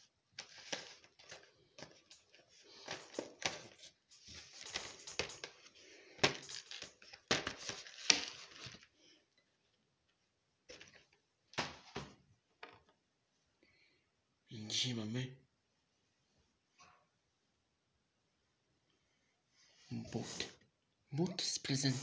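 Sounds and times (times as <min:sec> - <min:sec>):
cardboard and plastic crinkling: 0:00.0 - 0:09.0.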